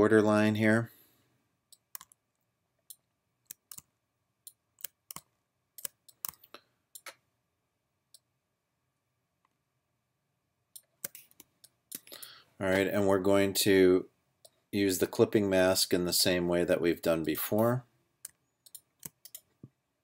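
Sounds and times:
computer mouse clicking: 1.7s - 2.2s, 2.9s - 7.2s, 10.8s - 12.1s, 18.2s - 19.6s.

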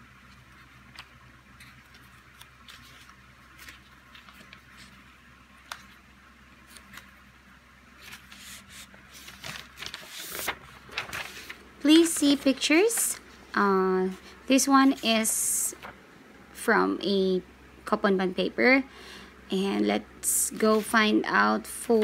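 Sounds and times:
paper rustling: 0.2s - 6.0s, 6.6s - 7.2s, 8.0s - 13.2s, 14.8s - 16.0s, 20.5s - 21.0s.

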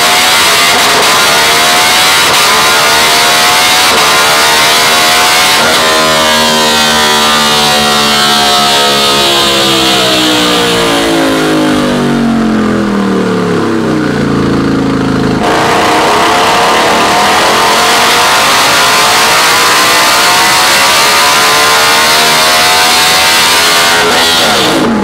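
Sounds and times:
motorcycle engine revving on dyno: 0.0s - 25.0s.

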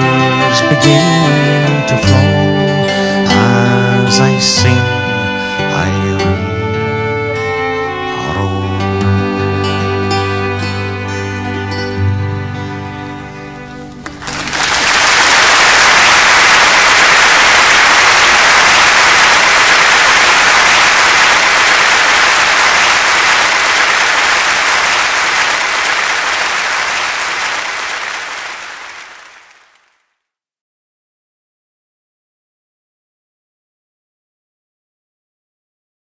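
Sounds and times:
audience applause: 13.9s - 30.0s.

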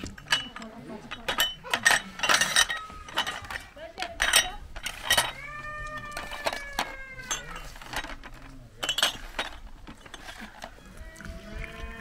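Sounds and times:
tea glasses clinking: 0.2s - 3.5s, 6.1s - 8.2s, 8.8s - 10.3s
goat kid bleating: 10.8s - 12.0s.

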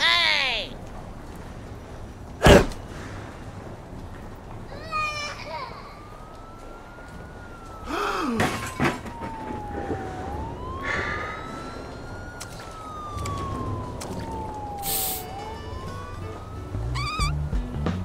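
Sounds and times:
siren wailing: 4.9s - 17.5s.

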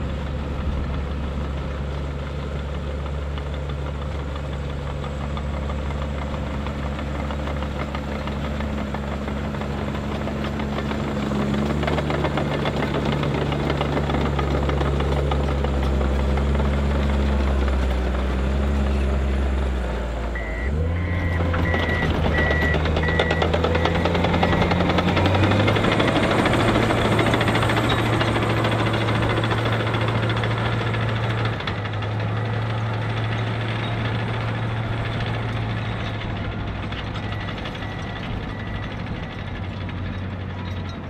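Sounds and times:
diesel engine running under load: 0.0s - 41.0s
high beeping alarm: 20.4s - 24.6s.

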